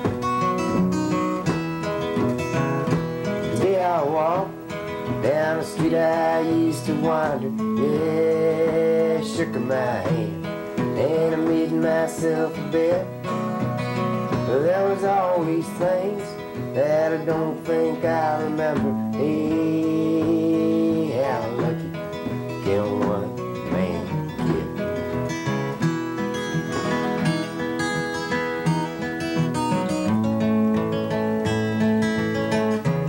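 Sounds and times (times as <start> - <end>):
acoustic guitar: 0.0 - 33.0
man singing: 2.8 - 25.8.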